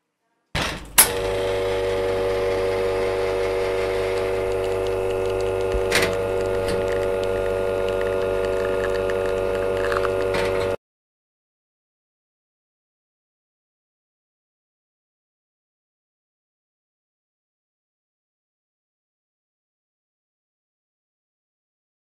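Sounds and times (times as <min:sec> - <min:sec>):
espresso machine humming: 0:01.0 - 0:10.8.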